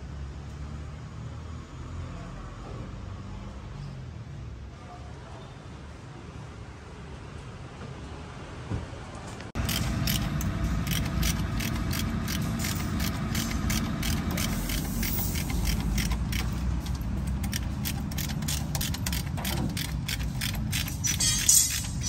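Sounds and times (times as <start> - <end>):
ratchet wrench clicking: 9.6 - 22.0.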